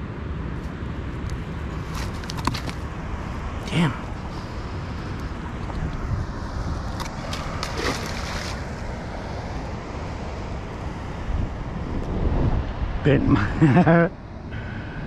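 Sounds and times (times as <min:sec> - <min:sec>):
wind buffeting microphone: 0:01.4 - 0:13.7
fish splashing into water: 0:06.9 - 0:08.8.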